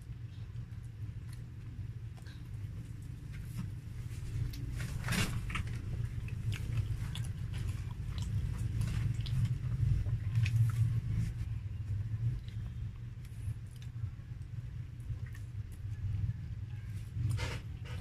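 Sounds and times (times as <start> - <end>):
steady low hum: 0.0 - 18.0
close-up chewing with mouth smacks: 5.4 - 16.3.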